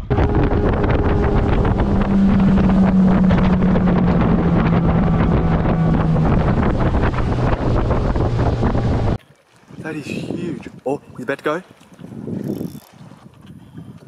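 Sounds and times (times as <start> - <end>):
outboard motor droning: 0.0 - 9.2
wind buffeting microphone: 0.0 - 14.0.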